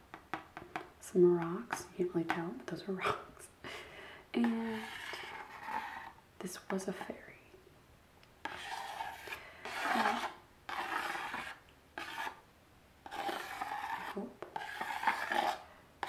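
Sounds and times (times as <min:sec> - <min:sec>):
stylus scratching a board: 0:04.4 - 0:06.2, 0:08.4 - 0:12.4, 0:13.0 - 0:15.6.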